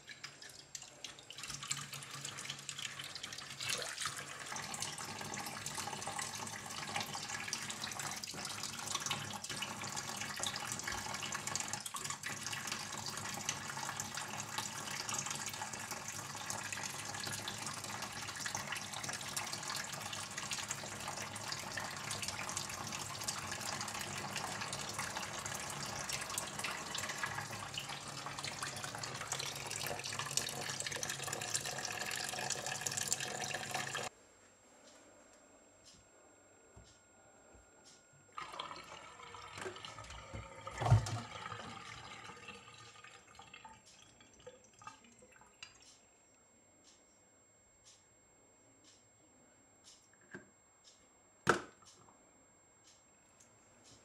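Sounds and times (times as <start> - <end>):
water splashing into metal sink: 38.4 - 45.8.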